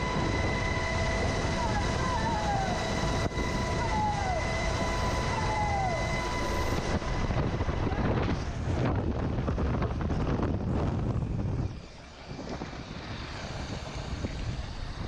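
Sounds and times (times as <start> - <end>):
helicopter rotor and engine noise: 0.0 - 15.0
high steady whine: 0.0 - 15.0
wind rushing over microphone: 0.0 - 15.0.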